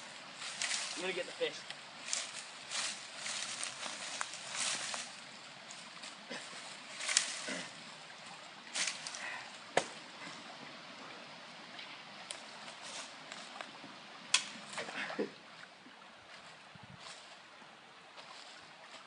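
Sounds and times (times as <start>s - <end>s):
dry leaves rustling: 0.0s - 9.4s, 12.4s - 13.6s
faint steady hiss: 0.0s - 19.0s
twigs cracking: 0.4s - 7.8s, 8.7s - 10.0s, 14.3s - 14.9s.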